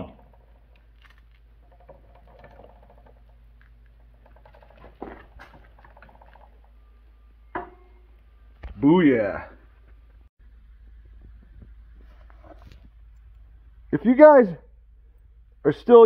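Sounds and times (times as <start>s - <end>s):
roller chain ticking over sprockets: 1.6s - 3.4s.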